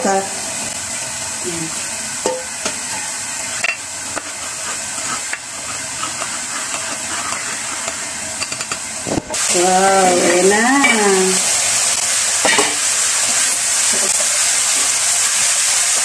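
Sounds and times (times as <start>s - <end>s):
sizzling hiss: 0.0s - 16.0s
spatula stirring in pot: 2.2s - 8.9s.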